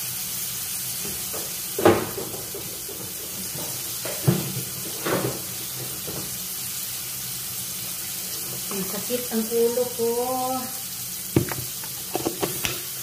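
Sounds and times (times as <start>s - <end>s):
steady hiss: 0.0s - 13.0s
cabinet door knocks: 1.8s - 3.1s.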